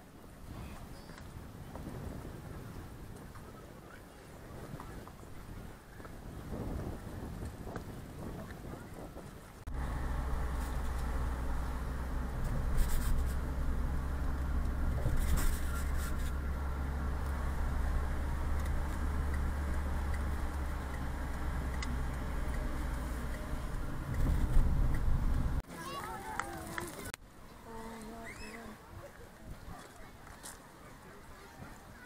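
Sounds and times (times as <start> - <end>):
car engine and road rumble: 4.9 - 25.7.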